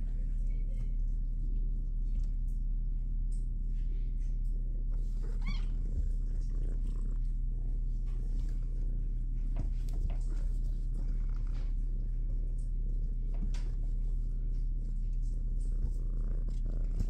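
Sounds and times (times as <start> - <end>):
kitten purring: 0.0 - 17.0
kitten meow: 5.3 - 6.0.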